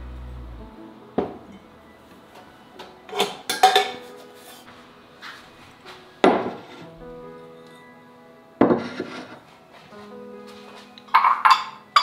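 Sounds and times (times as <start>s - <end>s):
ceramic dishes clinking: 3.1s - 4.1s, 11.1s - 12.0s.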